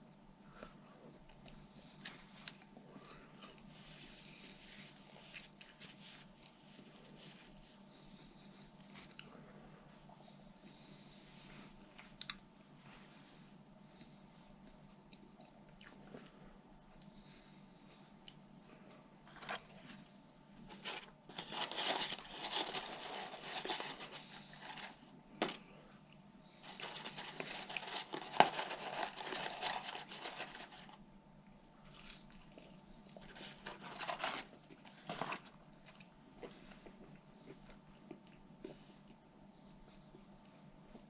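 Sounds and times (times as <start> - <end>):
paper packaging crinkling: 19.3 - 25.6, 26.6 - 31.0, 31.9 - 35.5.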